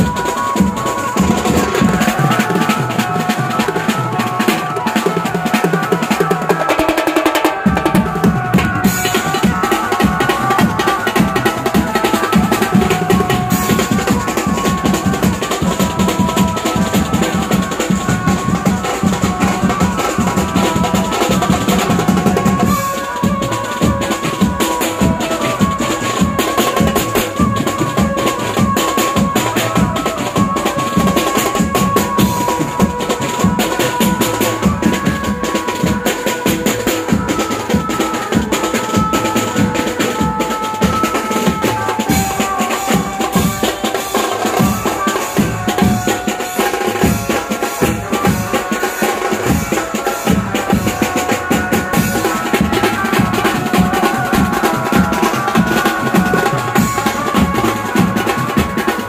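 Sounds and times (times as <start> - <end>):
fast dense drumming: 0.0 - 37.9.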